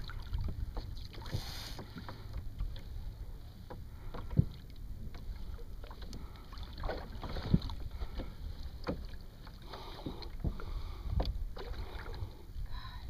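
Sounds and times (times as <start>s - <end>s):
water splashing against kayak hull: 0.0s - 12.4s
wind rumble on microphone: 10.4s - 13.0s.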